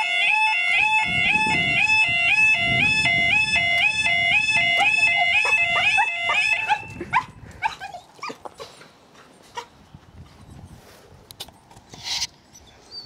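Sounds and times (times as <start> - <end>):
level crossing alarm warbling: 0.0 - 7.1.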